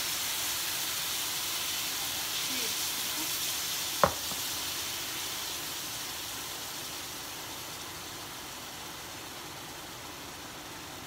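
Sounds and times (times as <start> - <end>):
batter sizzling on a hot pan: 0.0 - 11.0.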